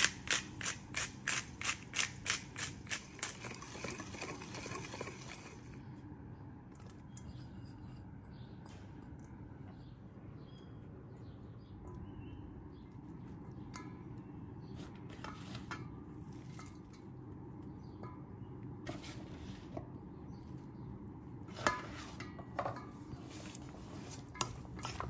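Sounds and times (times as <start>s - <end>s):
utensil clinking in metal bowl: 0.0s - 5.7s, 21.5s - 25.0s.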